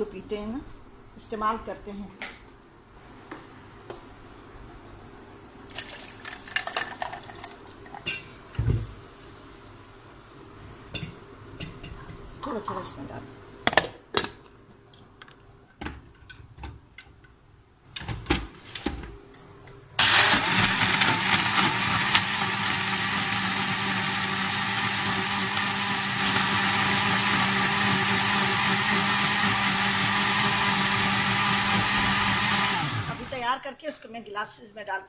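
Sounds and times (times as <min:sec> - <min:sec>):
blender motor running: 0:20.0 - 0:33.4.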